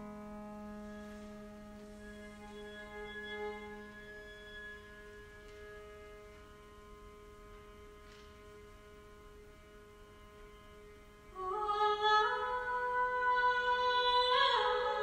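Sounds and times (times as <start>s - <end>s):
chamber ensemble sustained chord: 0.0s - 14.8s.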